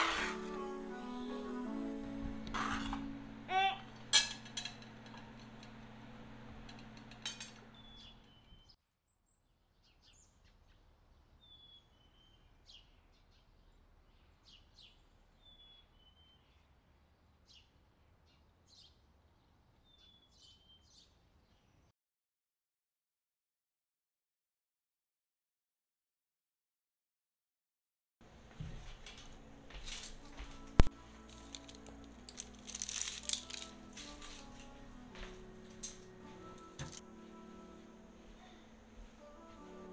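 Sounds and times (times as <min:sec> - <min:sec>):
low steady hum: 0:00.0 - 0:08.8, 0:28.2 - 0:39.9
tableware clinking: 0:02.5 - 0:03.2, 0:03.9 - 0:05.8, 0:06.5 - 0:08.2
birds singing: 0:07.6 - 0:16.6, 0:18.3 - 0:19.0, 0:19.8 - 0:21.9.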